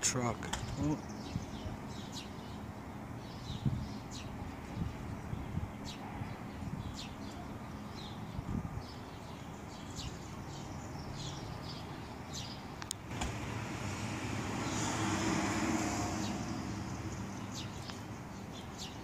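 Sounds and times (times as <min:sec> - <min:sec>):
traffic rumble: 0:00.0 - 0:19.0
car passing: 0:13.1 - 0:18.9
bird chirps: 0:16.2 - 0:19.0.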